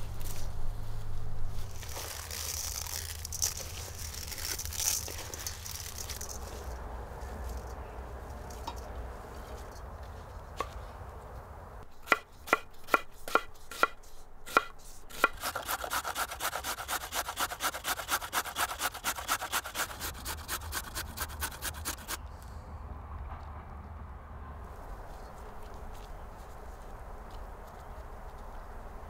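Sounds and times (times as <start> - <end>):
knife slicing on wooden board: 12.0 - 22.2
carrot scraping on metal grater: 12.1 - 22.2.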